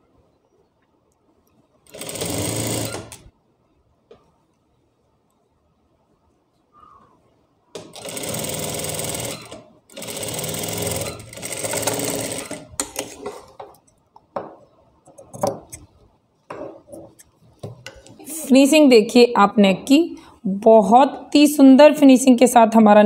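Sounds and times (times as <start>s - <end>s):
industrial sewing machine stitching: 1.9s - 3.2s, 7.8s - 13.2s.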